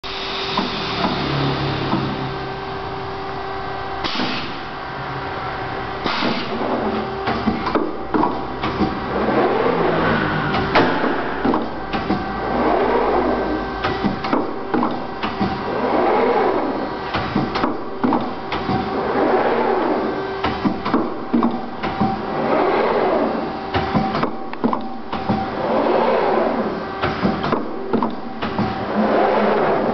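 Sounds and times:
machine hum and whir: 0.0s - 29.9s
sharp mechanical clacks and knocks: 6.0s - 9.1s, 13.8s - 15.7s, 17.1s - 19.0s, 27.0s - 29.0s.

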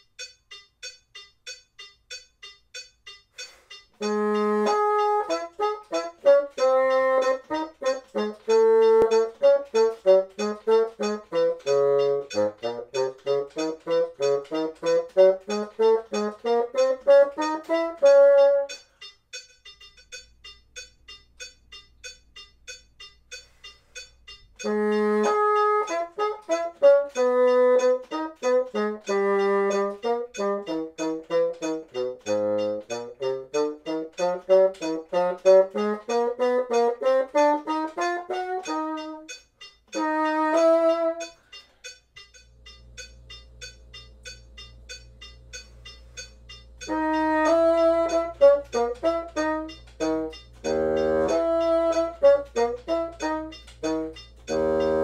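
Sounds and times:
metronome clicking: 0.0s - 55.0s
bassoon playing: 4.0s - 18.8s, 24.6s - 41.5s, 46.8s - 55.0s.

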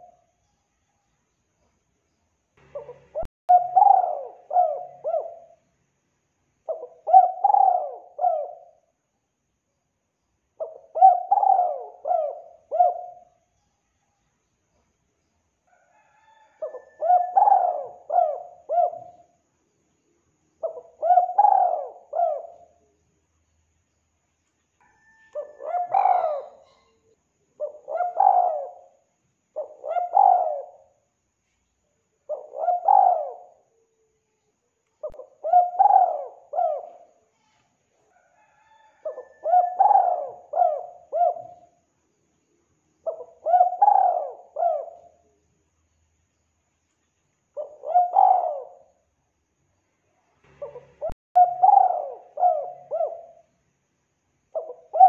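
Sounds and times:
dove cooing: 0.0s - 0.2s, 2.6s - 5.6s, 6.7s - 8.9s, 10.6s - 13.4s, 15.9s - 19.4s, 20.6s - 22.9s, 24.8s - 27.0s, 27.6s - 29.0s, 29.6s - 31.0s, 32.3s - 34.0s, 35.0s - 37.2s, 38.2s - 41.8s, 43.0s - 45.3s, 47.6s - 49.0s, 50.5s - 53.5s, 54.6s - 55.0s.

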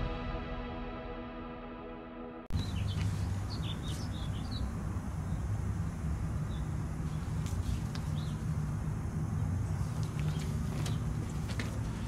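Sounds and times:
birds chirping: 2.5s - 12.0s.

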